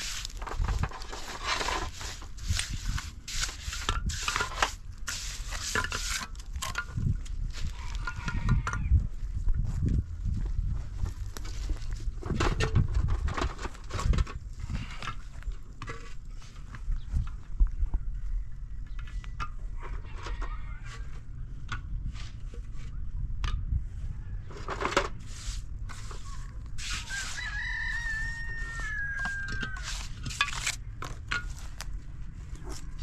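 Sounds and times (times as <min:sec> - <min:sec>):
concrete blocks knocking and scraping: 0:00.0 - 0:09.0, 0:24.5 - 0:31.9
rooster crowing: 0:07.7 - 0:09.0, 0:27.0 - 0:30.1.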